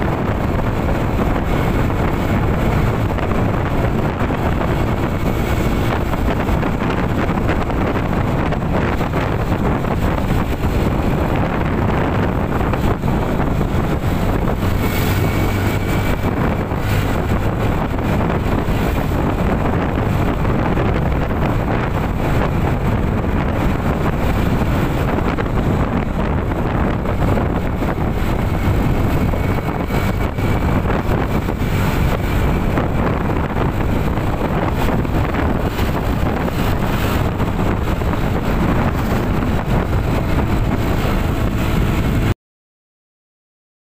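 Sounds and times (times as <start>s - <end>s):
vehicle road and engine noise: 0.0s - 42.4s
wind rushing over microphone: 0.0s - 42.4s.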